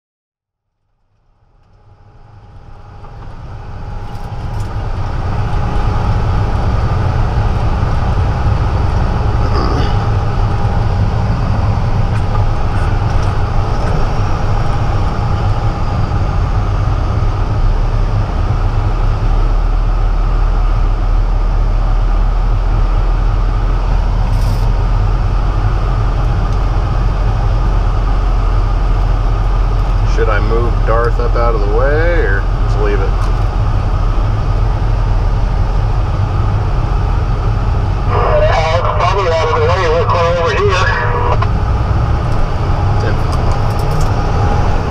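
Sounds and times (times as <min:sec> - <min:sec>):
faint whine: 0:00.7 - 0:44.9
truck diesel engine rumble: 0:01.2 - 0:44.9.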